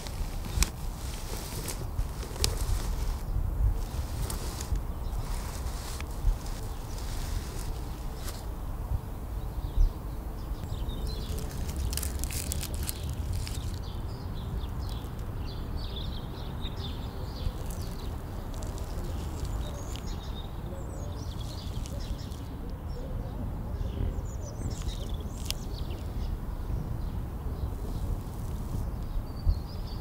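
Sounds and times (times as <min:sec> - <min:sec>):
small birds chirping: 0:00.0 - 0:30.0.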